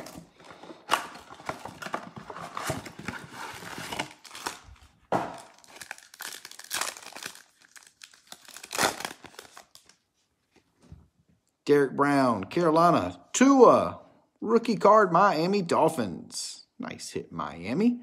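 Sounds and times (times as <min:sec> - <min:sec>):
foil packs crinkling: 0:00.0 - 0:10.0
foil pack tearing open: 0:03.1 - 0:04.7, 0:05.4 - 0:09.8.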